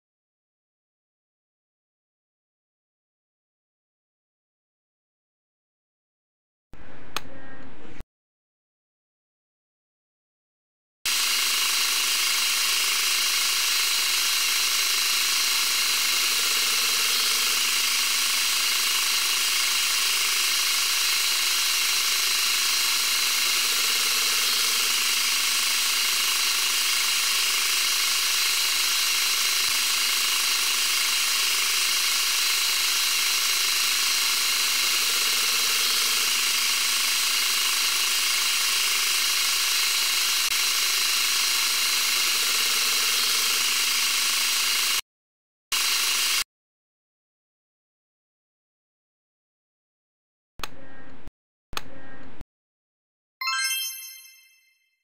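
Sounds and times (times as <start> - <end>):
lathe cutting steel: 11.1 - 45.0.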